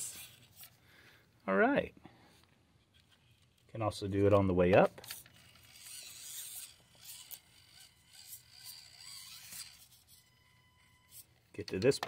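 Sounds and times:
small electric motor whirring: 0.0 - 0.8, 5.0 - 11.8.

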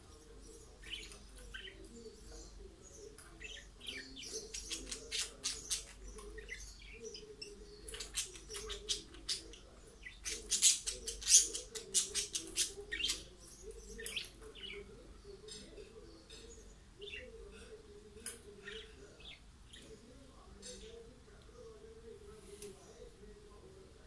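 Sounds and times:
budgerigars chirping: 0.0 - 17.6.

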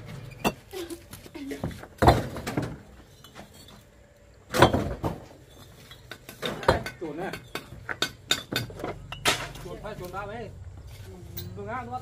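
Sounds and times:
objects knocking and clinking: 4.6 - 9.7.

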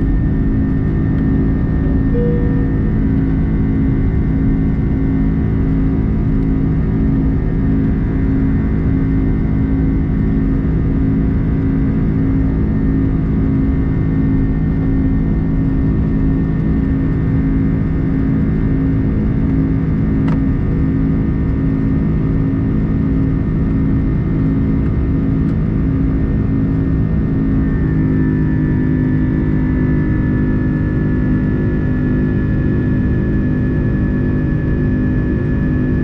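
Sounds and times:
jet cabin engine rumble: 0.0 - 36.0.

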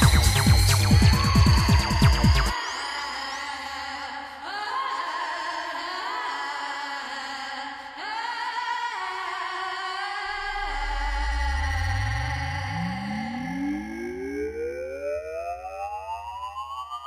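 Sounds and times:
electronic dance synth chords: 0.0 - 2.6, 10.3 - 17.0.

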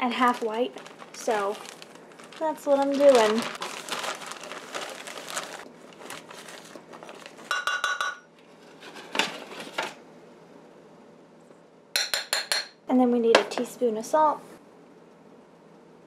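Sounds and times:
plastic bag crinkling: 0.0 - 7.6
cup clinking against metal bowl: 7.5 - 8.3.

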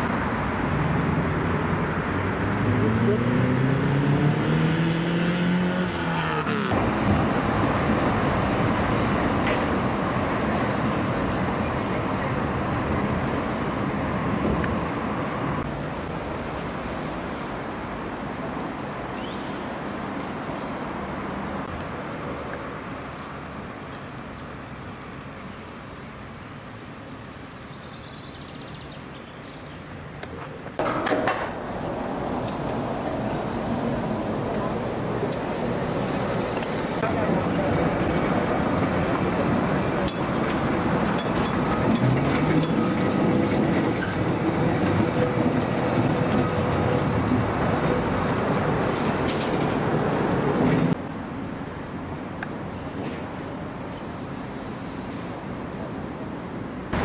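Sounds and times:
tram rumbling on track: 0.0 - 19.2, 30.7 - 54.4, 55.9 - 57.0.

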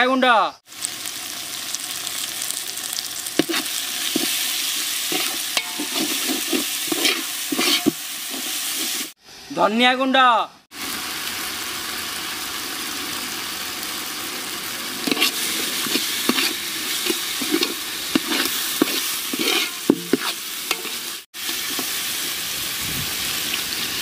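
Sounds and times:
spice paste sizzling in a pot: 0.7 - 9.5, 10.7 - 24.0
metal ladle scraping a pot: 3.4 - 9.1, 15.0 - 21.9.

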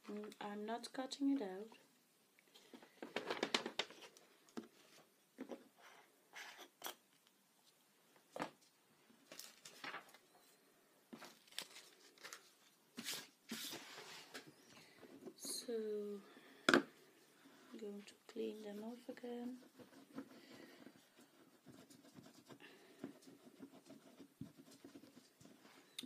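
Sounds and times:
paper card rustling: 3.0 - 4.2, 9.3 - 10.2, 11.2 - 14.6.

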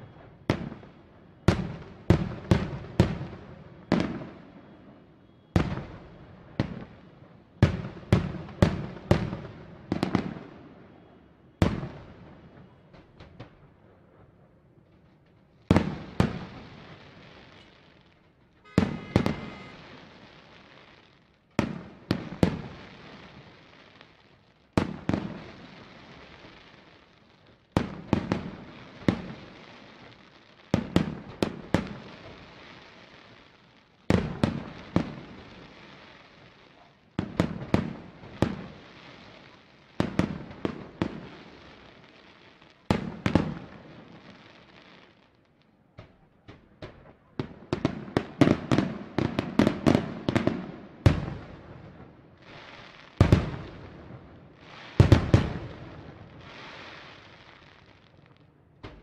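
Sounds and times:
firework shells bursting: 18.6 - 20.2.

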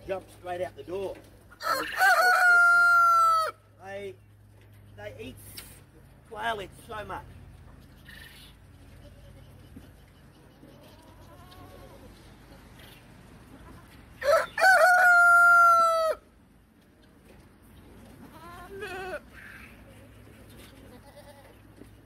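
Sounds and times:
rooster crowing: 1.6 - 3.6, 14.2 - 16.2
goat bleating: 8.0 - 9.7, 18.3 - 19.6, 20.6 - 21.8.

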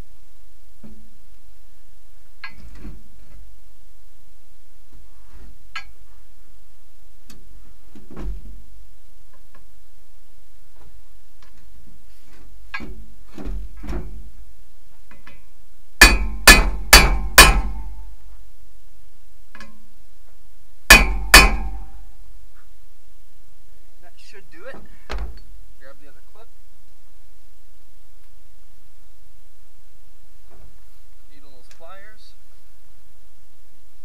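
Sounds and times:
hammer striking metal socket: 20.9 - 21.8.

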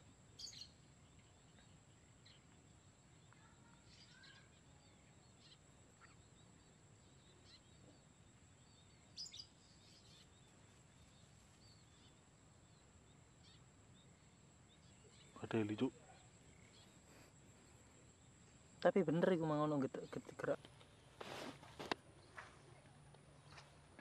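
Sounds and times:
faint high bird chirps: 0.3 - 18.4.

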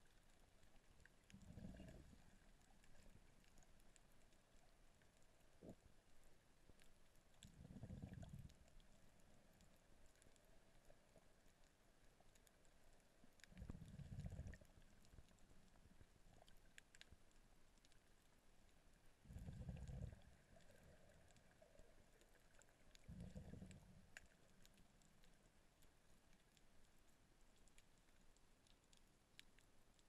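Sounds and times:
faint scattered clicks: 0.0 - 30.0
dull low underwater rumbles: 0.6 - 17.3, 18.9 - 25.6.

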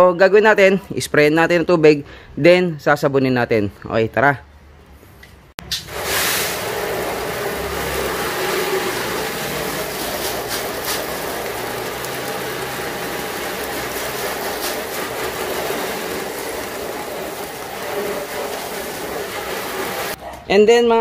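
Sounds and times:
hose nozzle spraying water: 5.7 - 20.2
water splashing on metal: 5.7 - 20.2.

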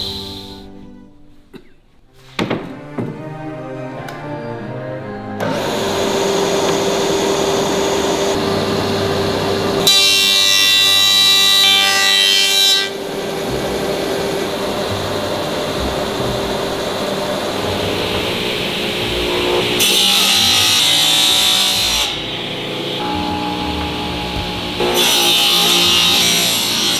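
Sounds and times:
woodworking machine humming: 5.4 - 26.9
machine high ringing whine: 21.0 - 26.3.

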